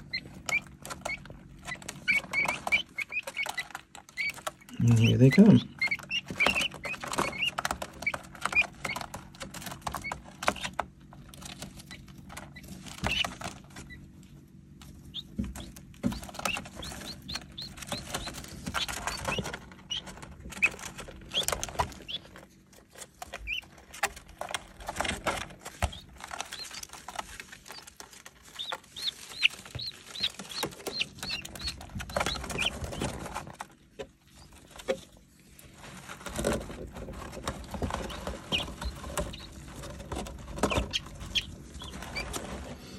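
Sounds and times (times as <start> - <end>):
chicks peeping: 0.0 - 42.9
feet scratching on shavings: 25.0 - 33.5.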